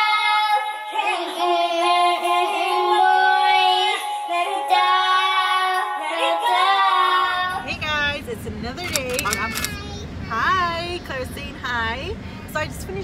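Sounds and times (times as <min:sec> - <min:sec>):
girl singing through microphone: 0:00.0 - 0:07.7.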